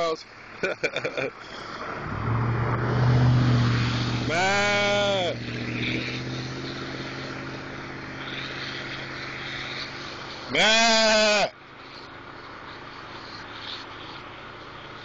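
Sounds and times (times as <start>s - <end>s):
man imitating a bleat: 4.3s - 5.4s, 10.5s - 11.5s.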